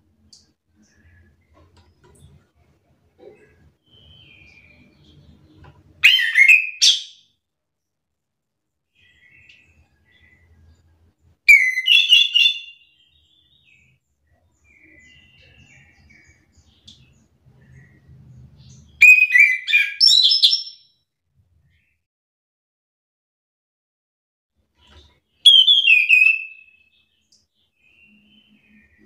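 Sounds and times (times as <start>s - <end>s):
faint bird chirps: 0.2s - 2.4s, 3.2s - 7.4s, 8.9s - 20.9s, 24.8s - 29.0s
bird song bursts: 3.4s - 7.4s, 11.5s - 20.9s, 24.8s - 29.0s.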